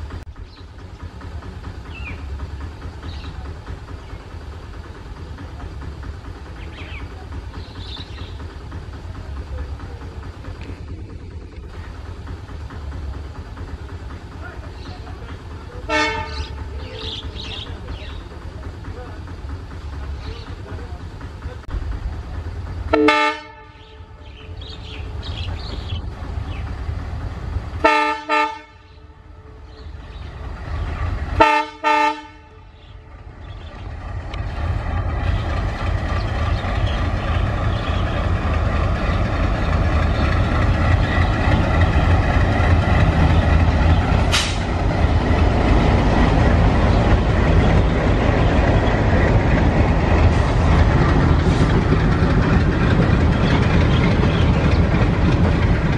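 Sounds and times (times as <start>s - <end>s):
diesel engine running past: 0.0s - 55.9s
train coaches rumbling and clattering: 0.0s - 55.9s
locomotive horn: 15.9s - 16.6s, 22.9s - 24.2s, 27.8s - 29.7s, 31.4s - 32.8s.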